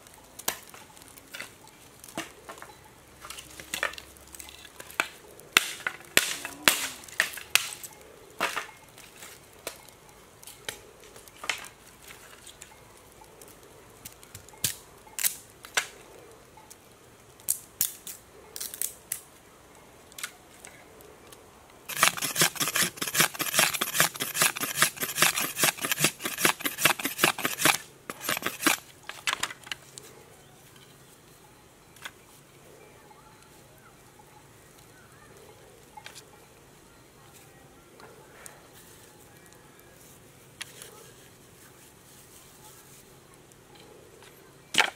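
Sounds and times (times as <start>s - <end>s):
machete striking dry bamboo: 21.9s - 29.4s.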